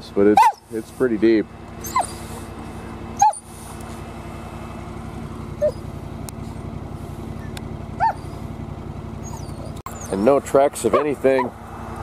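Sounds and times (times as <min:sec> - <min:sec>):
utility vehicle engine running: 0:00.0 - 0:12.0
dog yipping: 0:00.4 - 0:00.7, 0:01.8 - 0:02.4, 0:03.2 - 0:03.5, 0:05.6 - 0:05.9, 0:07.4 - 0:08.5, 0:09.2 - 0:10.3, 0:10.9 - 0:11.5.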